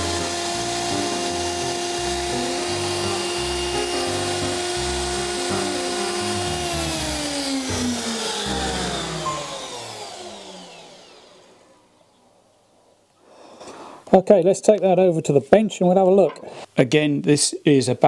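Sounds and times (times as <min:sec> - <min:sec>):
background music: 0:00.0 - 0:10.7
grinder wheel high whine: 0:00.0 - 0:11.9.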